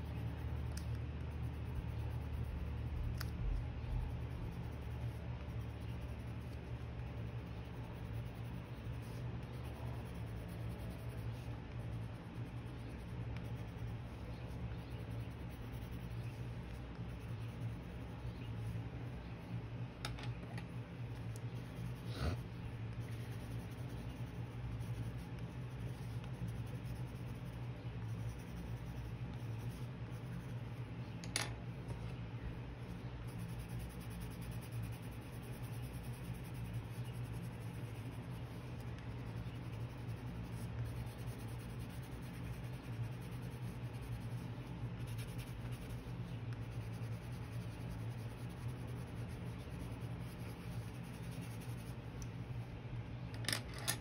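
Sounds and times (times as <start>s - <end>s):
pencil scratching on paper: 0.0s - 18.8s, 21.2s - 30.8s, 33.0s - 52.0s
low steady hum: 0.0s - 54.0s
click: 0.7s - 0.9s.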